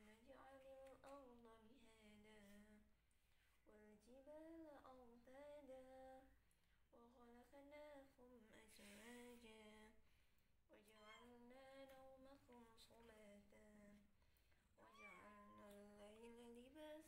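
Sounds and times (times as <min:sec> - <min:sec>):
cat yowling: 0:14.9 - 0:15.7.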